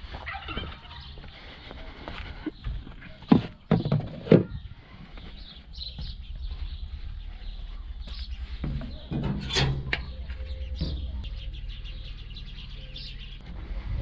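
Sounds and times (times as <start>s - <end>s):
birds chirping: 0.0s - 14.0s
tractor diesel engine running: 4.5s - 14.0s.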